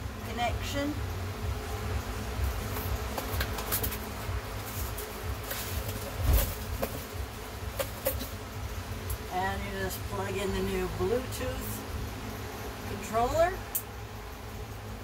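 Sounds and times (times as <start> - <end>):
steady low drone: 0.0 - 15.0.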